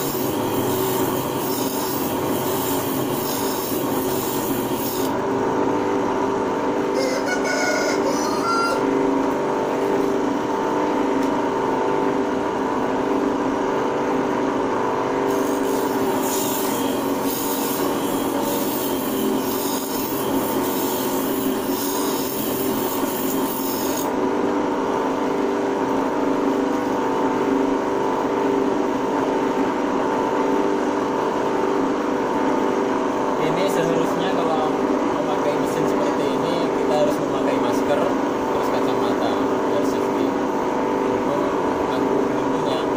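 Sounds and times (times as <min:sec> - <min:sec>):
blade grinding on wheel: 0:00.0 - 0:05.2, 0:15.3 - 0:24.2
bench grinder humming: 0:00.0 - 0:07.1, 0:08.0 - 0:42.9.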